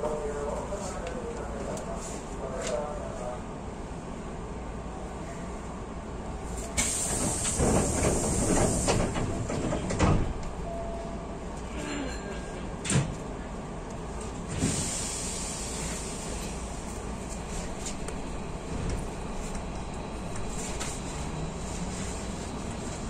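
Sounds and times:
train car rumble: 0.0s - 23.0s
train doors hissing: 6.6s - 10.4s, 14.5s - 16.6s.

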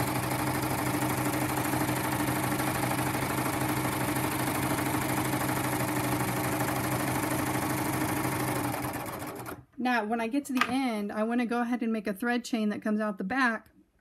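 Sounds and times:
serger sewing machine stitching: 0.0s - 9.7s.

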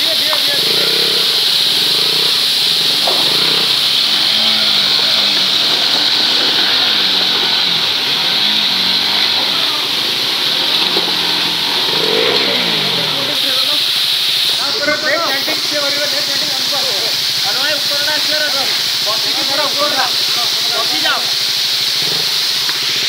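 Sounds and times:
motorcycle engine revving: 0.0s - 23.0s
waterfall rushing: 0.0s - 23.0s.

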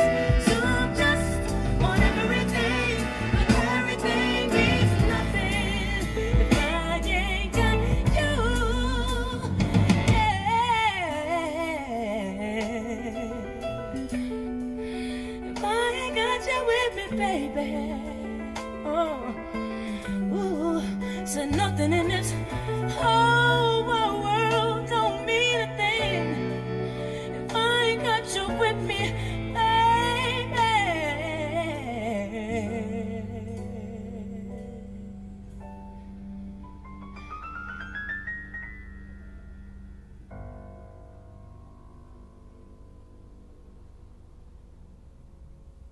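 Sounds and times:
bass and drums: 0.0s - 11.2s
woman singing soul ballad: 0.0s - 36.1s.

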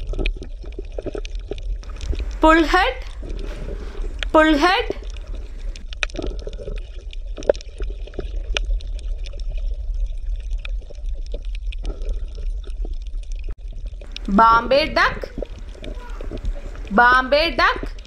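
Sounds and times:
small irregular clicks and pops: 0.0s - 14.4s, 15.2s - 17.0s
water bubbling and gurgling: 0.0s - 18.0s
steady low rumble: 1.8s - 5.9s, 14.0s - 18.0s.

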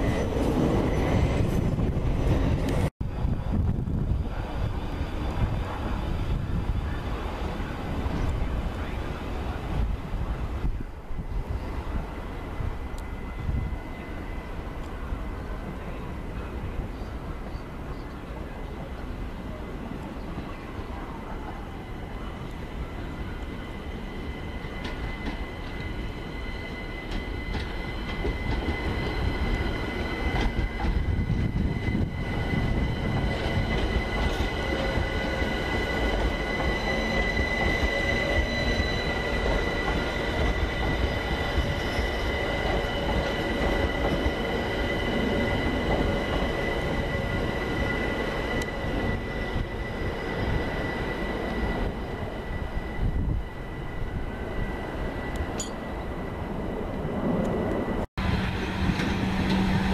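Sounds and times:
wheels rumbling on rail: 0.0s - 59.9s
train wheels squealing: 21.9s - 56.1s.

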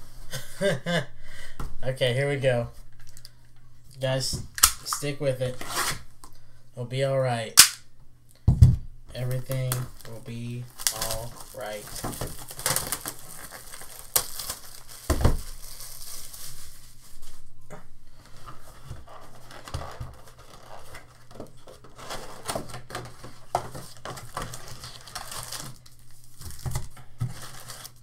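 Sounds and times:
foil packs rustling: 9.2s - 17.3s, 18.2s - 28.0s
plastic wrapping crinkling: 9.2s - 17.4s, 18.3s - 28.0s.

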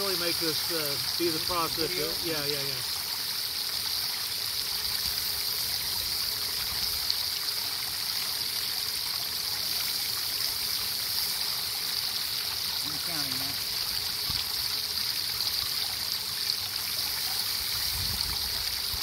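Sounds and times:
hose spraying water on metal: 0.0s - 2.8s.

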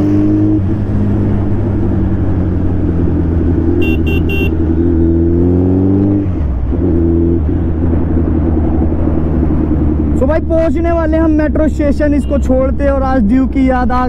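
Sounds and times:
motorcycle engine accelerating: 0.0s - 10.4s
vehicle horn toots: 3.8s - 4.6s.

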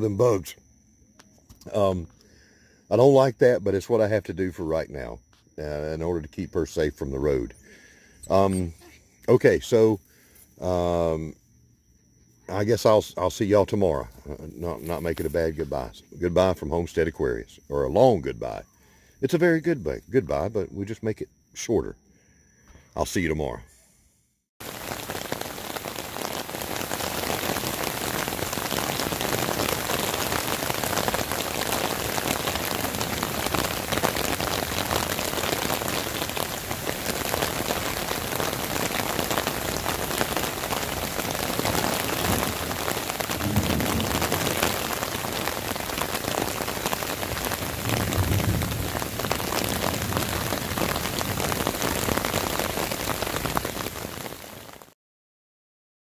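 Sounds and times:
rain on foliage: 24.6s - 55.0s
low rumble: 43.4s - 44.9s.

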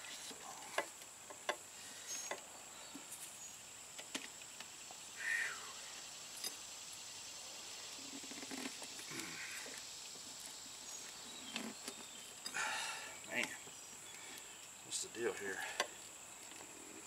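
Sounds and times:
tire irons clicking and scraping: 7.8s - 17.0s.

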